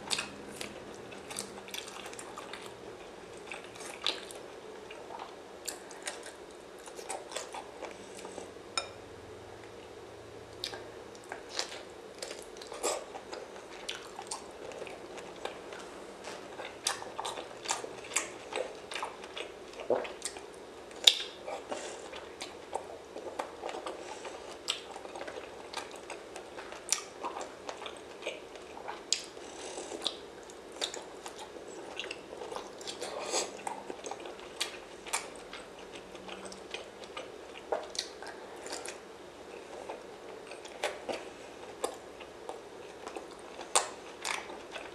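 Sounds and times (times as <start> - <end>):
crunchy chewing: 10.5 - 44.9.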